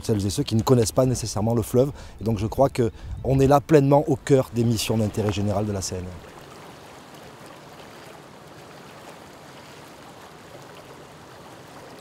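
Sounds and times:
river water rushing: 4.1 - 12.0.

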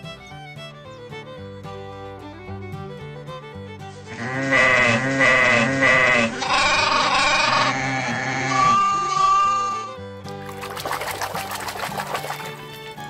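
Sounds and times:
sheep bleating: 4.1 - 10.0.

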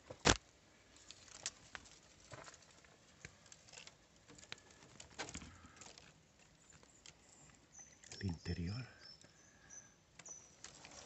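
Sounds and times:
faint light clicks and rustles: 0.9 - 8.3, 10.1 - 11.0.

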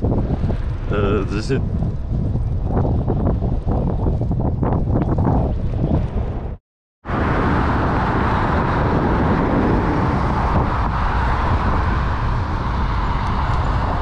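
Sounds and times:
wind on microphone: 0.0 - 14.0
road traffic passing: 7.0 - 14.0.

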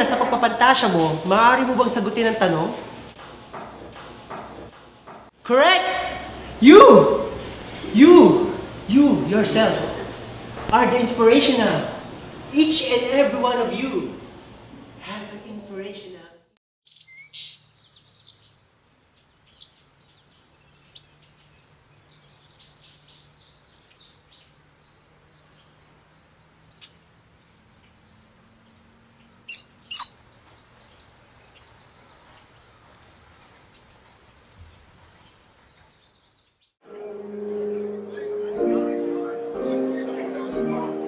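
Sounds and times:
faint outdoor hum: 0.0 - 16.4
small birds chirping: 16.9 - 36.8.

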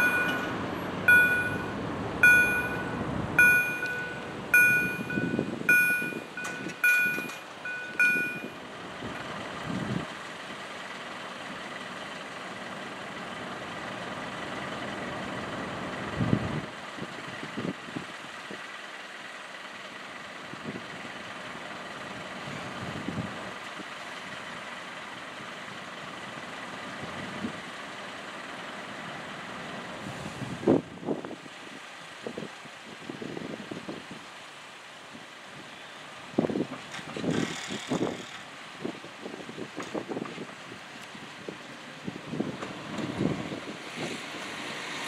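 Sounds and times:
level crossing warning bell: 0.0 - 8.6
diesel railbuses running: 0.0 - 32.2, 33.2 - 45.0.

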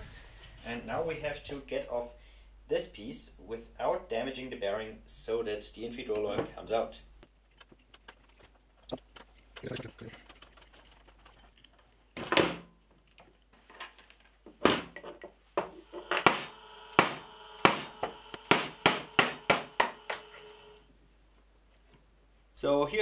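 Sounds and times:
hammer tapping metal punch: 14.6 - 20.3.

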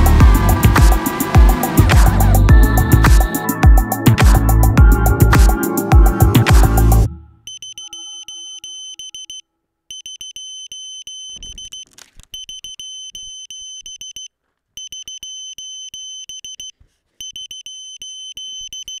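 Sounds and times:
rapid short high-pitched beeps: 7.5 - 19.0
handling rustle: 11.4 - 12.4.

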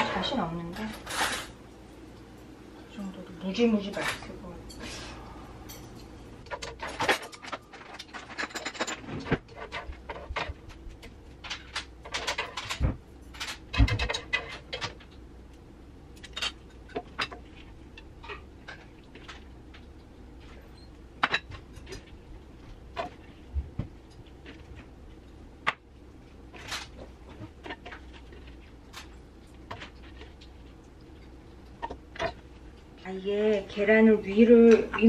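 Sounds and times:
low steady hum: 0.0 - 35.0.

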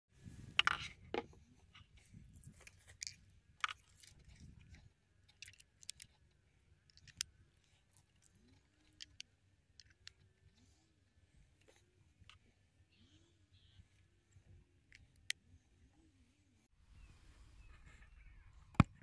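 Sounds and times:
metal plugs clicking and scraping: 0.4 - 10.6.

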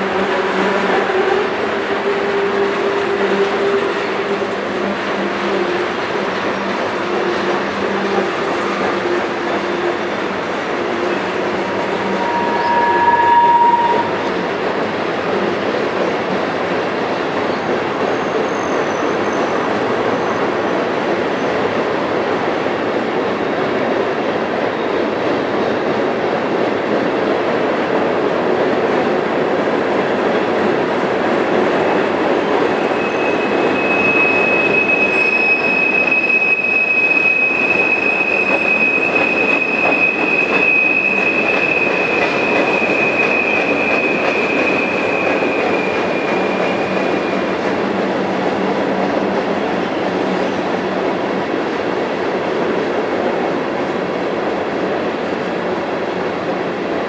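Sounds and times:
steel wheels on rail: 0.0 - 54.1
high-pitched wheel squeal: 11.9 - 14.2, 32.8 - 47.5.

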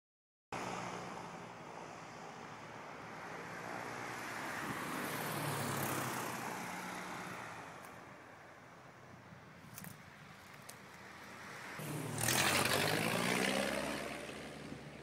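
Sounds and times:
propeller plane flying overhead: 11.5 - 15.0.

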